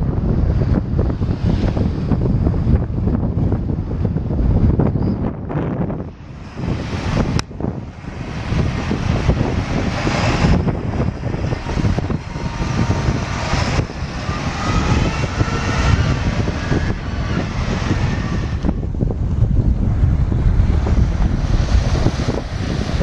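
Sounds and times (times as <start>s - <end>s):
tractor diesel engine running: 6.1s - 23.0s.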